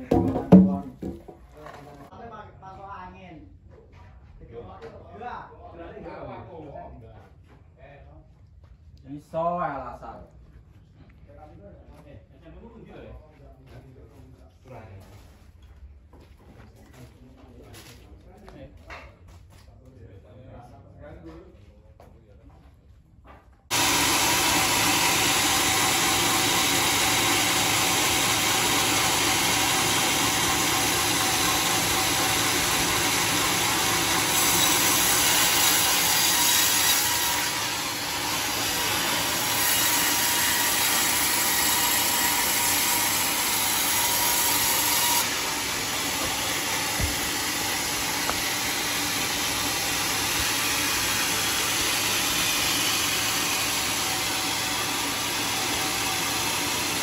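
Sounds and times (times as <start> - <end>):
band saw cutting log: 0.0 - 2.0, 23.7 - 57.0.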